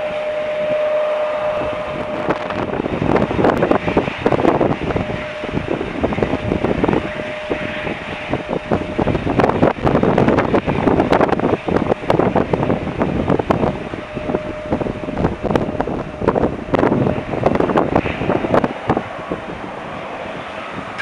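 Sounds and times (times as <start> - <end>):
wind buffeting microphone: 0.0 - 21.0.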